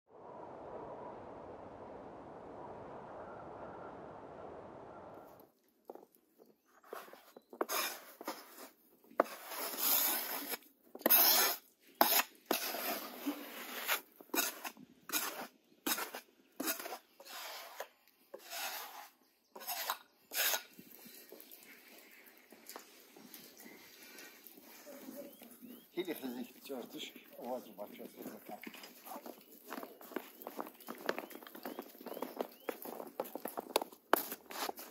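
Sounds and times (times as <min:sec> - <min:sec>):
hand sweeping snow off table: 0:06.8 - 0:14.6, 0:15.2 - 0:19.1.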